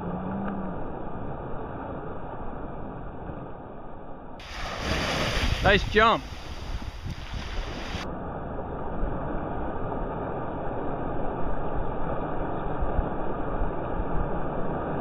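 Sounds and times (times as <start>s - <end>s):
small surf washing: 4.4s - 8.1s
wind noise on microphone: 4.4s - 15.0s.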